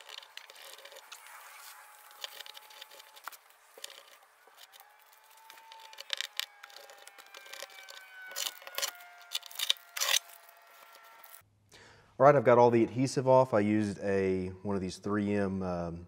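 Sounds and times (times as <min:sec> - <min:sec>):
towel rubbing on car paint: 0:00.0 - 0:04.2.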